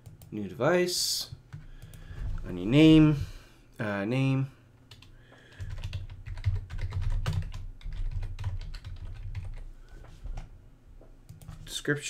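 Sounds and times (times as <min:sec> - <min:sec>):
fast typing on keyboard: 0:04.9 - 0:09.6.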